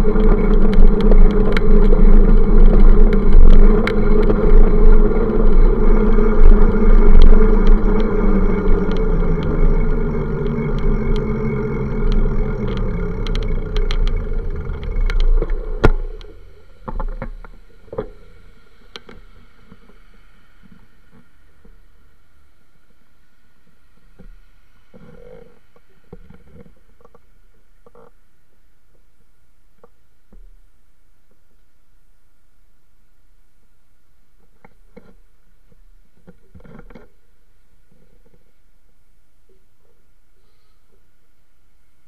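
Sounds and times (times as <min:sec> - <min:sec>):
wind buffeting: 0:00.0 - 0:16.5
bicycle rolling rattle: 0:00.0 - 0:19.1
quiet street sound: 0:00.0 - 0:42.0.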